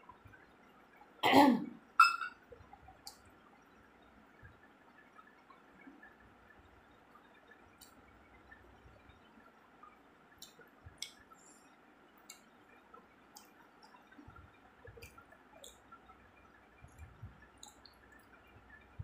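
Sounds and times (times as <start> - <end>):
chewing clicks and smacks: 10.4 - 11.2.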